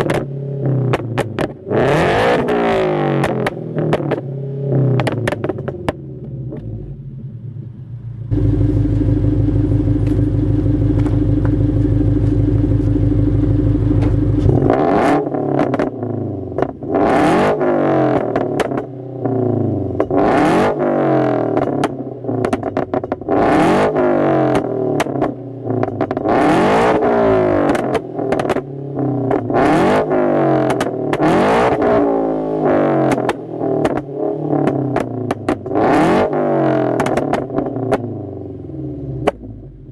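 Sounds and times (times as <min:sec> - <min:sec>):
exhaust pops and crackles: 0:00.0 - 0:00.3, 0:00.9 - 0:01.7, 0:03.2 - 0:04.3, 0:05.0 - 0:06.7, 0:08.3 - 0:14.8, 0:16.6 - 0:16.9, 0:18.1 - 0:18.9, 0:21.5 - 0:23.3, 0:24.5 - 0:26.3, 0:27.5 - 0:29.6, 0:30.6 - 0:31.8, 0:33.0 - 0:35.8, 0:36.9 - 0:38.1, 0:39.2 - 0:39.9
car engine revving: 0:00.0 - 0:39.9.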